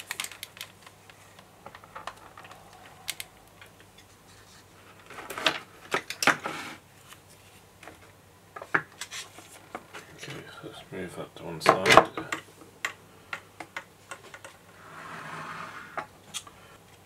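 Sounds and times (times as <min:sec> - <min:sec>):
plastic packaging crackling: 0:00.0 - 0:03.6.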